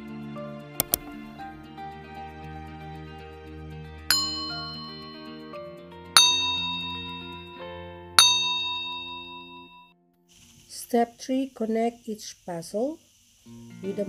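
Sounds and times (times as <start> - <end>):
soft background music: 0.0 - 9.8, 13.6 - 14.0
bell dinging: 4.1 - 5.6, 6.2 - 9.9.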